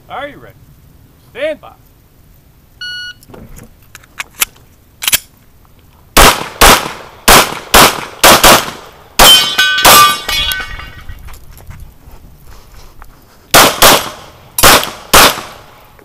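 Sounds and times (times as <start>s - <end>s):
pistol shots: 6.2s - 10.6s, 13.5s - 15.7s
steel targets ringing: 9.2s - 11.1s.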